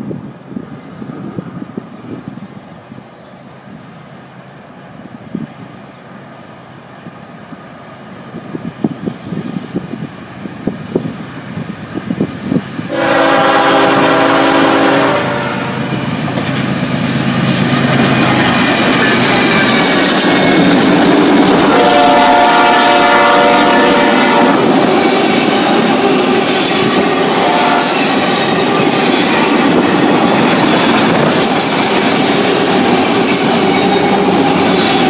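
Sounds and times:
freight train rumbling: 0:00.0 - 0:35.0
rail noise: 0:00.0 - 0:35.0
train air horn blast: 0:12.9 - 0:16.0, 0:21.5 - 0:24.8, 0:26.9 - 0:28.2.

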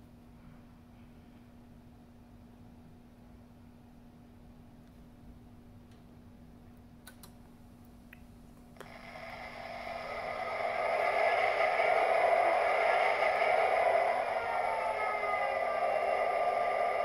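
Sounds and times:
faint clicks: 0:07.0 - 0:07.4
model locomotive diesel engine sound: 0:08.8 - 0:17.0.

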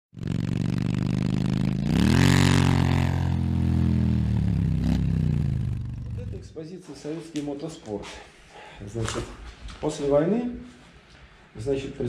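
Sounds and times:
motorcycle engine revving: 0:00.1 - 0:06.4.

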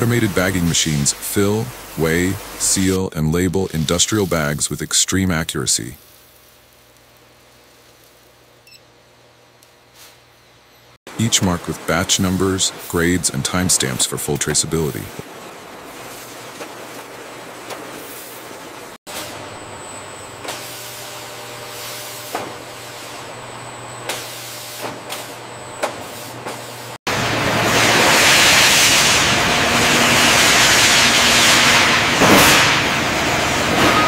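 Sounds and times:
industrial machine hissing rush: 0:00.0 - 0:06.1, 0:11.2 - 0:16.4, 0:26.0 - 0:34.0.

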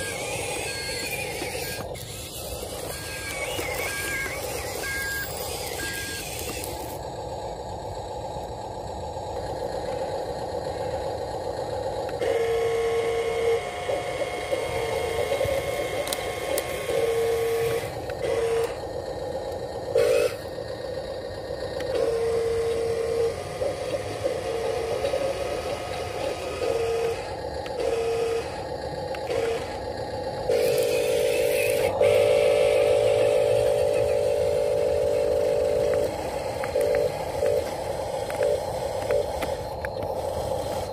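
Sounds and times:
small electric motors whining: 0:00.0 - 0:40.9
steady motor tone: 0:00.0 - 0:40.9.

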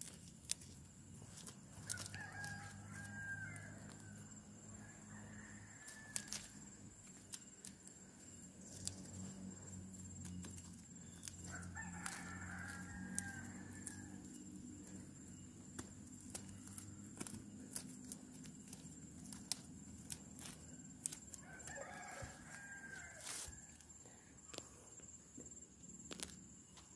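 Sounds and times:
rooster crowing: 0:01.7 - 0:06.8, 0:11.0 - 0:15.4, 0:16.3 - 0:24.0.

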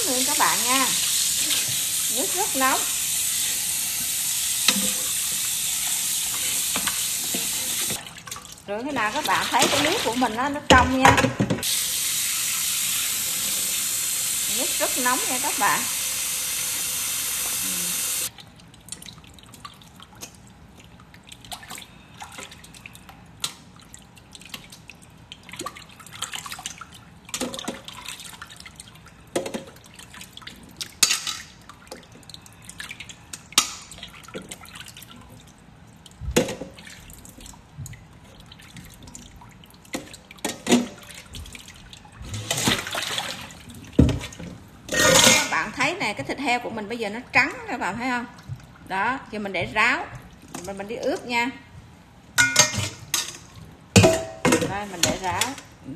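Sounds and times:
water rushing into a sink: 0:00.0 - 0:08.2, 0:08.9 - 0:10.4, 0:11.6 - 0:18.3
tap water running into a bowl: 0:00.0 - 0:10.3, 0:11.2 - 0:20.4
water splashes and drips: 0:00.0 - 0:10.6, 0:18.2 - 0:45.3, 0:47.6 - 0:51.4.

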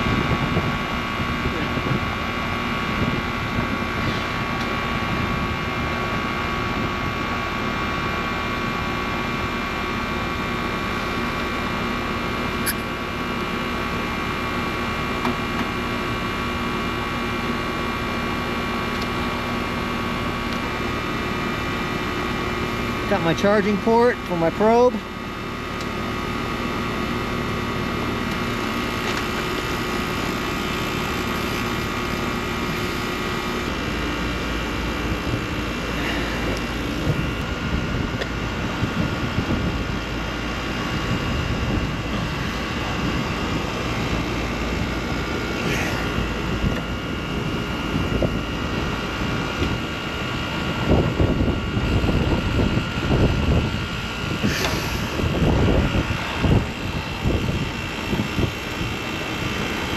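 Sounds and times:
air conditioner unit droning: 0:00.0 - 0:59.9
low rumbles: 0:26.2 - 0:59.9.

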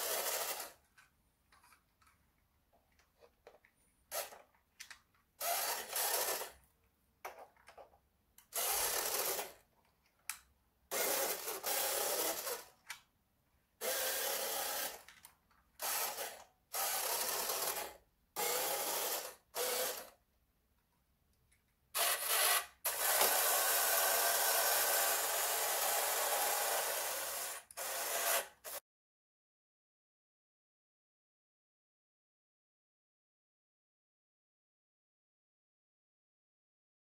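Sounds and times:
toy forklift motor whirring: 0:00.0 - 0:00.8, 0:04.1 - 0:04.5, 0:05.4 - 0:06.6, 0:08.5 - 0:09.6, 0:10.9 - 0:12.8, 0:13.8 - 0:20.2, 0:22.0 - 0:28.8.

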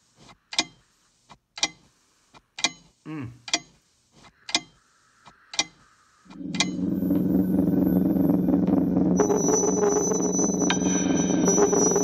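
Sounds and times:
faint steady hiss: 0:00.0 - 0:06.4
clock ticking: 0:00.5 - 0:00.9, 0:01.5 - 0:06.8
sound dropping in pitch: 0:06.3 - 0:12.0.

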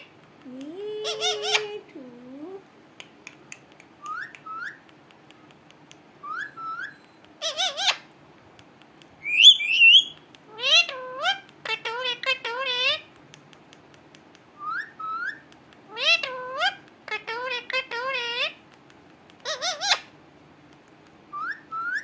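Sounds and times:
parakeet whistles and squawks: 0:04.0 - 0:04.8, 0:06.2 - 0:08.1, 0:09.2 - 0:13.1, 0:14.6 - 0:18.6, 0:19.4 - 0:20.1, 0:21.3 - 0:22.0.

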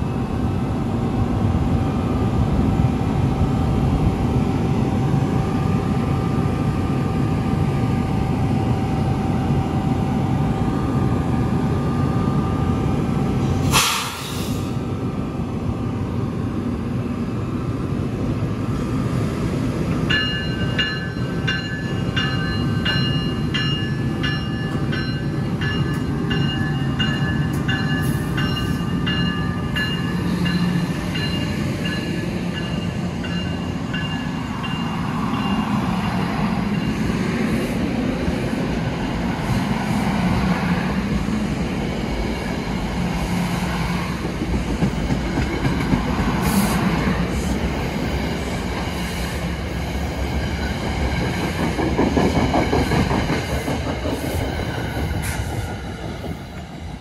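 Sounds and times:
train wheels rumbling on rails: 0:00.0 - 0:57.0
grade crossing bell ringing: 0:20.1 - 0:37.1.

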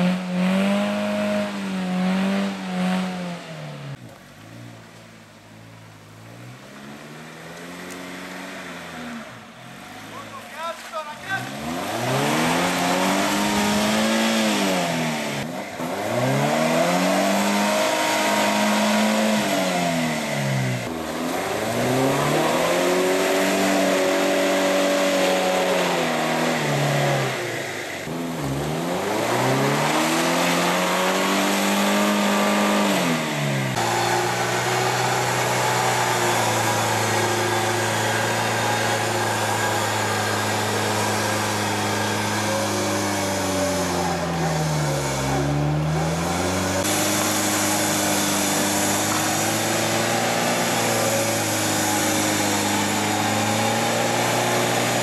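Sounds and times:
car engine revving: 0:00.0 - 0:55.0.

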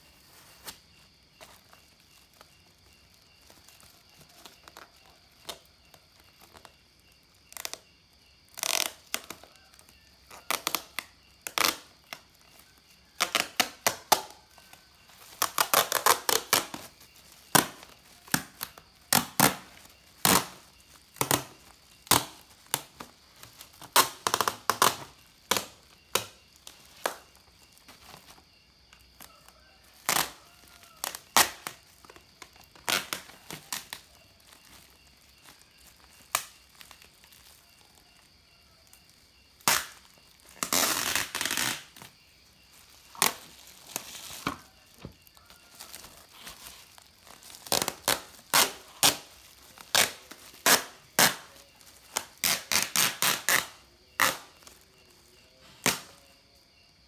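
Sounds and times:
plastic wrapping crinkling: 0:00.0 - 0:56.2
packing tape peeling and tearing: 0:07.5 - 0:07.8, 0:08.5 - 0:12.6, 0:13.2 - 0:28.4, 0:29.2 - 0:37.6, 0:39.5 - 0:42.2, 0:42.8 - 0:54.8, 0:55.8 - 0:56.2.

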